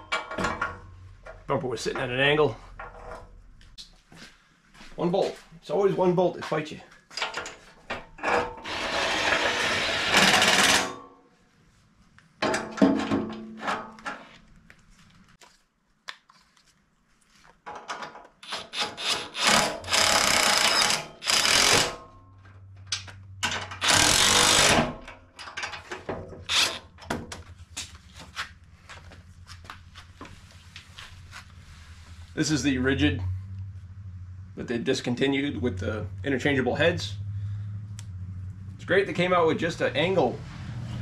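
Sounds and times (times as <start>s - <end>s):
tool clatter: 7.1s - 11.1s, 12.4s - 14.4s, 17.6s - 27.5s
impact driver hammering bolts: 9.9s - 10.9s, 18.4s - 22.1s, 23.4s - 27.3s.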